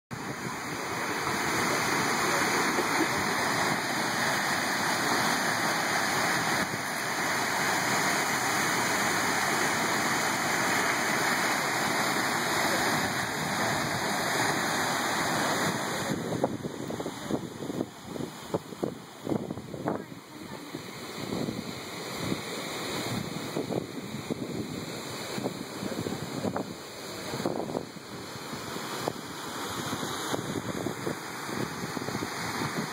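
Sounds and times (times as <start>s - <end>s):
waterfall rushing: 0.1s - 32.9s.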